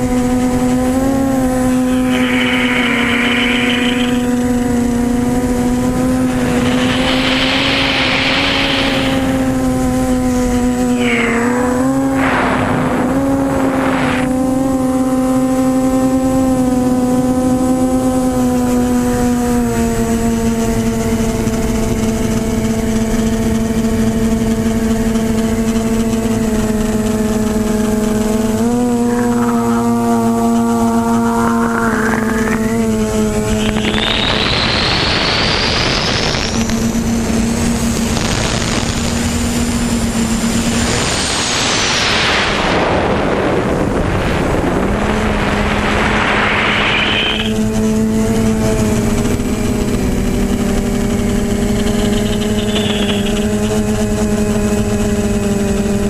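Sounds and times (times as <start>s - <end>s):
drone motors humming: 0.0s - 56.0s
high whine climbing in pitch: 0.0s - 56.0s
loud rushing noise: 1.4s - 14.4s, 27.8s - 36.9s, 38.2s - 47.7s.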